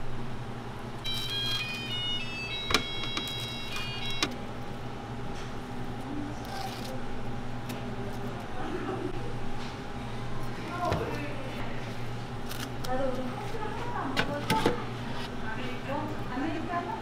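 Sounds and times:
electrical hum: 0.0s - 17.0s
electronic beeping melody: 1.0s - 4.3s.

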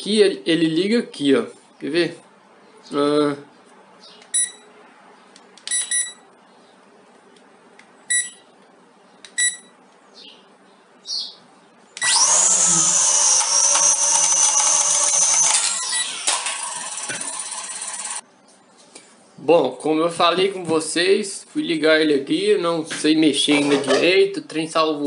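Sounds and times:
short high electronic beeps: 4.3s - 4.6s, 5.7s - 6.2s
drone propellers whining: 12.0s - 18.2s.

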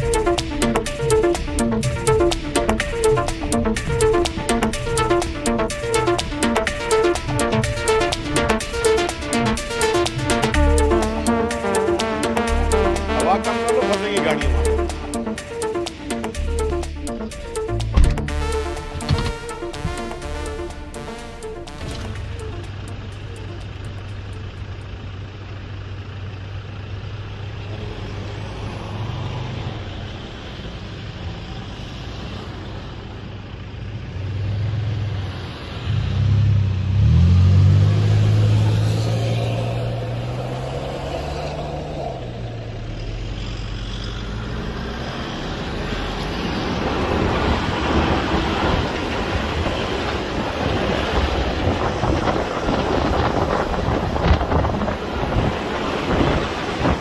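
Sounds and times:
off-road engines running: 0.0s - 57.0s
engine revving: 34.2s - 57.0s
rumble of driving over sand: 46.1s - 57.0s
wind on microphone: 50.8s - 57.0s.

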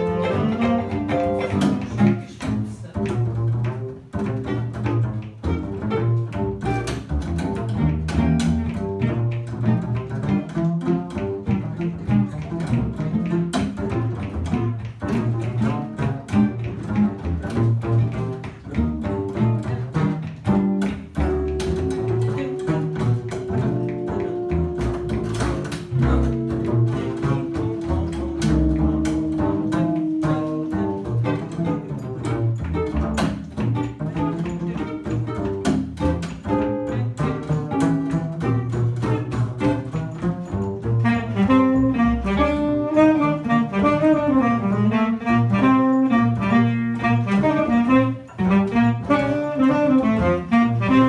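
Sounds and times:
double bass plucked: 0.0s - 51.0s
small jazz band: 0.0s - 51.0s
long held notes: 21.2s - 32.0s.

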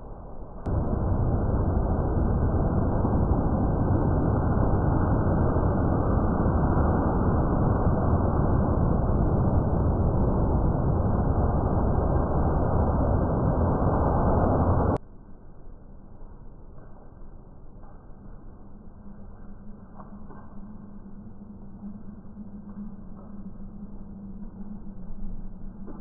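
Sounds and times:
slowed thunderstorm deep rumble: 0.3s - 15.0s.

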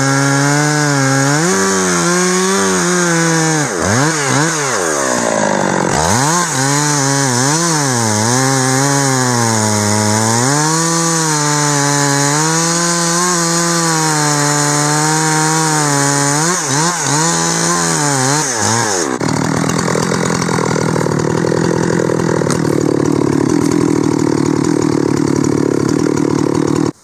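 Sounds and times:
chainsaw cutting wood: 0.0s - 27.0s
rough cutting sound: 0.0s - 27.0s.

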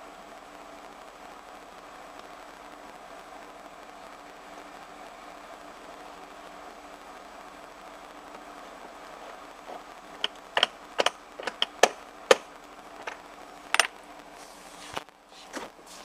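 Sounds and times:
sharp metallic clicks: 10.2s - 13.9s.

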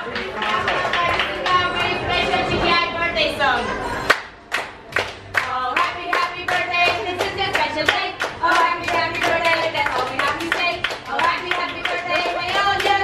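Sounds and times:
people clapping in rhythm: 0.0s - 2.3s, 4.1s - 13.0s
people singing along: 5.5s - 13.0s.

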